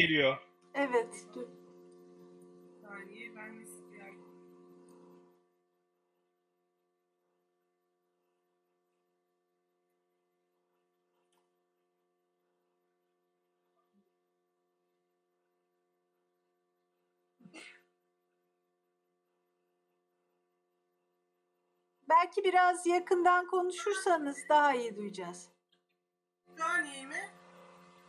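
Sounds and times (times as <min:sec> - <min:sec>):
faint steady hum: 0:00.0 - 0:05.6, 0:22.0 - 0:25.6, 0:26.5 - 0:28.0.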